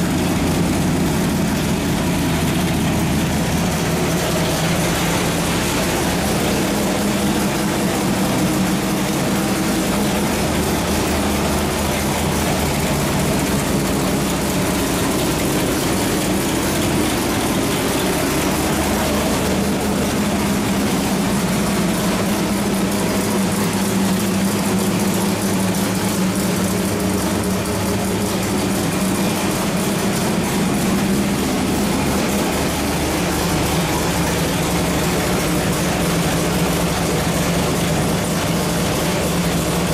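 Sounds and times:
car engine idling: 0:00.0 - 0:39.9.

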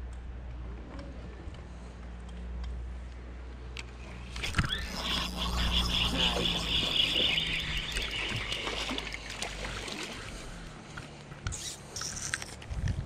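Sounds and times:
fishing reel being cranked: 0:04.2 - 0:09.6, 0:11.5 - 0:12.6
fish splashing in water: 0:04.3 - 0:11.0.

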